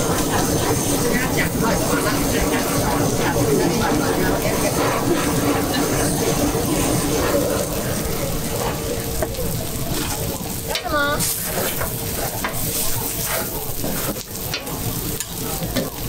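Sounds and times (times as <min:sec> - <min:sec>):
potatoes sizzling on a griddle: 0:05.6 - 0:16.0
spatula scraping: 0:11.2 - 0:14.2.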